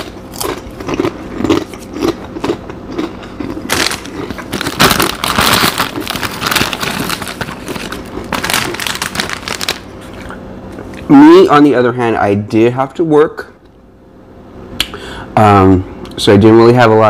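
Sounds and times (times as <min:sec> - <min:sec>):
foil chip bag crinkling: 0:00.0 - 0:11.1
mouth chewing crunchily: 0:00.0 - 0:11.1.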